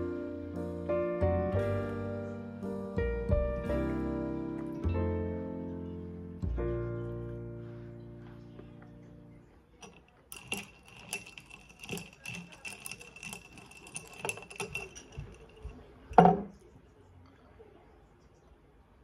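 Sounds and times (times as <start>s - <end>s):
ice cubes clinking in a glass: 9.8s - 16.5s
knock on the table: 16.2s - 16.5s.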